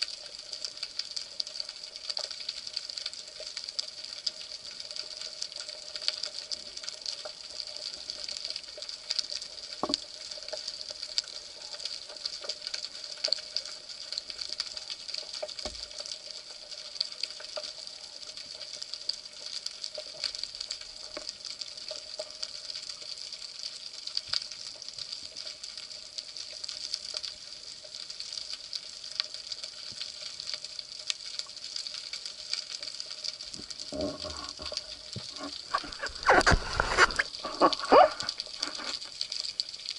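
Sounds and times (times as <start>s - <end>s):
dense crackle of underwater clicks: 0.0s - 39.9s
swish of moving water: 35.2s - 39.1s.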